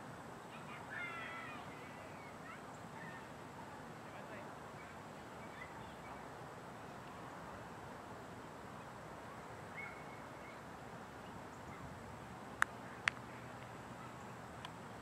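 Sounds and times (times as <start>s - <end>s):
steady low outdoor noise: 0.0s - 15.0s
bird chirp: 9.7s - 10.6s.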